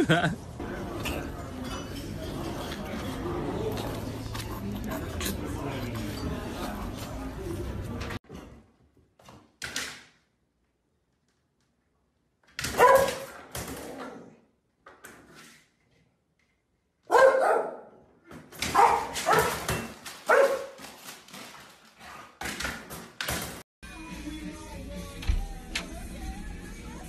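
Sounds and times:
dog barking: 12.7s - 13.3s, 17.1s - 18.0s, 18.6s - 19.6s, 20.3s - 20.8s.

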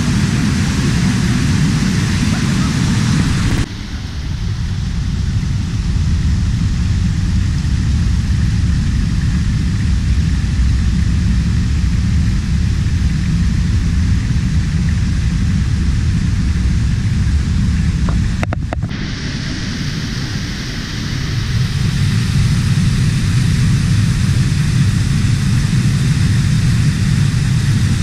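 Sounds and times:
stream rushing over rocks: 1.9s - 4.5s.

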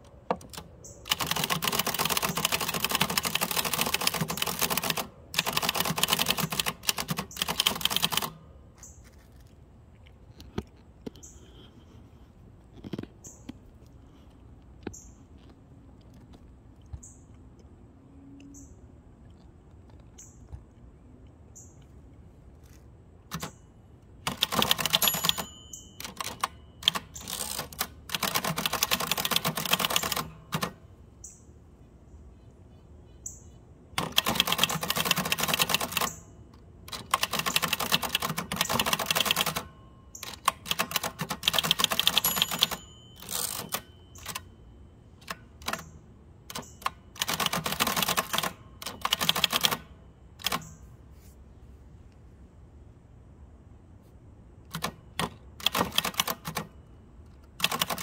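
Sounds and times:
typewriter key strikes: 0.3s - 8.4s, 24.2s - 30.8s, 34.0s - 36.2s, 36.9s - 44.5s, 45.2s - 45.9s, 46.5s - 50.8s, 54.7s - 56.8s, 57.6s - 58.0s.

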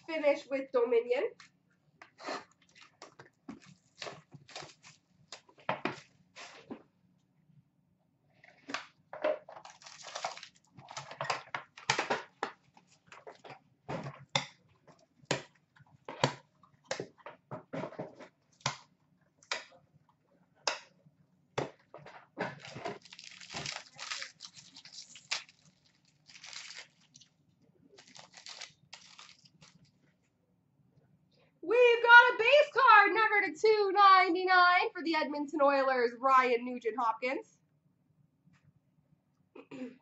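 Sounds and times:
card pack crinkling and tearing: 3.6s - 5.0s, 9.6s - 11.2s, 22.6s - 27.3s, 28.0s - 29.9s.

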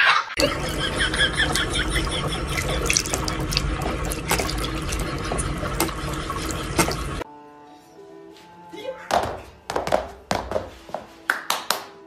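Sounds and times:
cat drinking water: 0.4s - 7.2s
tap running into sink: 0.4s - 7.2s.

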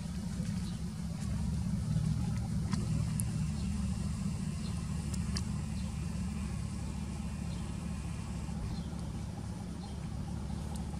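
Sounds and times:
vehicle engine idling: 0.0s - 10.9s.

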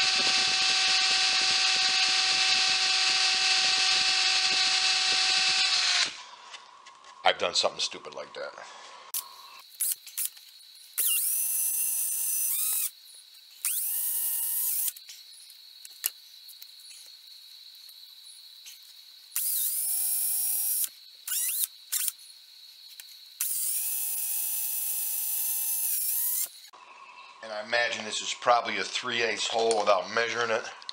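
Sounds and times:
cordless drill whining: 0.0s - 6.3s, 9.2s - 13.0s, 13.6s - 15.0s, 19.4s - 22.2s, 23.4s - 26.7s.

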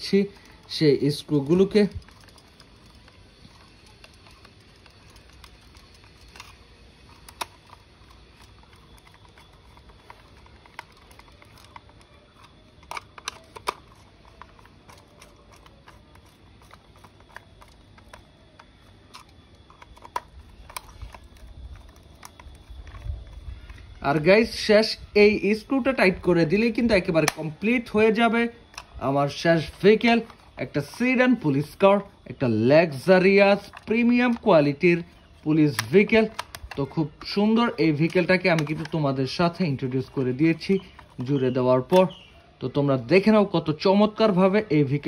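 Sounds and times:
screwdriver clicking on plastic: 1.3s - 23.8s, 35.6s - 42.3s.

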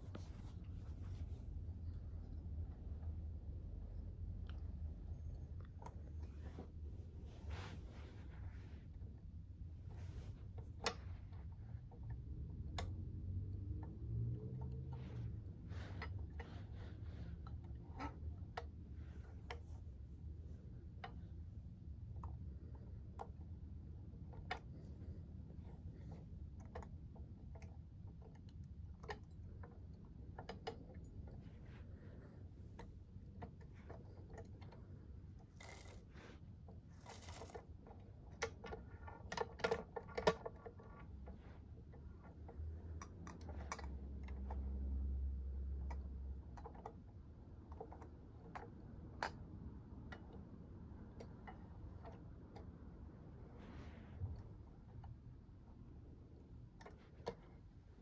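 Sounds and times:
toy truck clicks and rattles: 35.4s - 40.8s.

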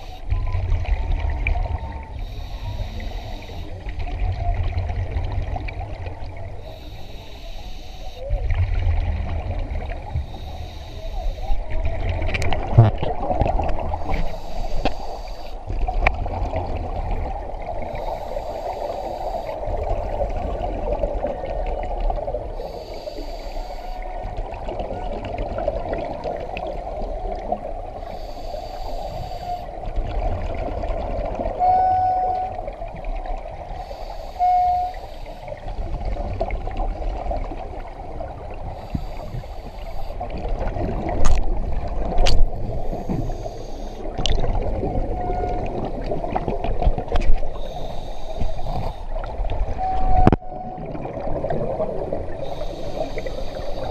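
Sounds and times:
steady hum: 0.0s - 21.2s, 38.2s - 46.4s, 47.1s - 53.9s
exhaled bubbles underwater: 0.0s - 53.9s
short squeaks: 34.3s - 35.2s.

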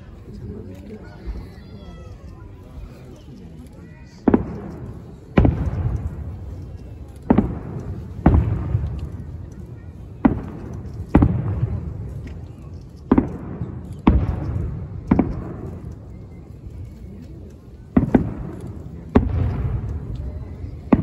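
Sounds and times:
firework bangs with rumbling echo: 4.2s - 12.4s, 13.0s - 16.3s, 17.9s - 21.0s.

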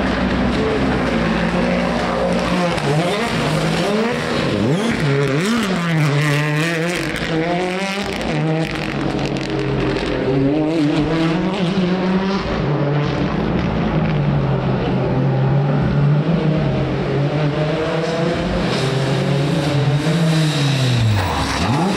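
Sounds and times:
rally car engine revving: 0.0s - 21.9s.

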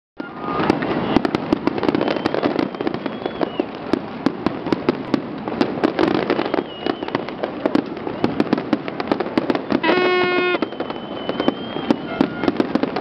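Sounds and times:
fireworks bangs: 0.2s - 13.0s
fireworks crackling: 0.2s - 13.0s
faint high whistles: 1.9s - 3.7s, 6.3s - 7.2s, 10.0s - 12.5s.

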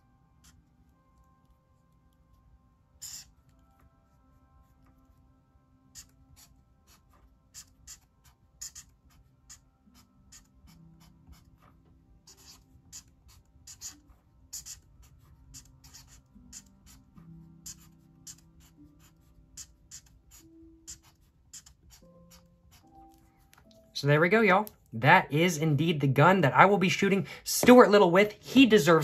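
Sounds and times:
faint background music: 0.0s - 29.0s
marker scratching on paper: 3.0s - 3.4s, 5.9s - 23.8s.

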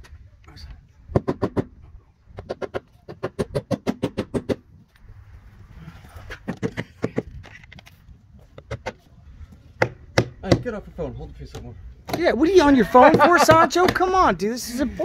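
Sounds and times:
hammer tapping nails: 9.8s - 10.7s.

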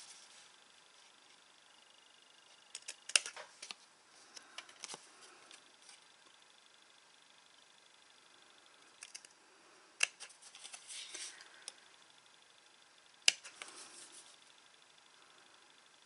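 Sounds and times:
paper rustling: 10.3s - 11.4s
scissors snipping cardstock: 13.2s - 13.8s.

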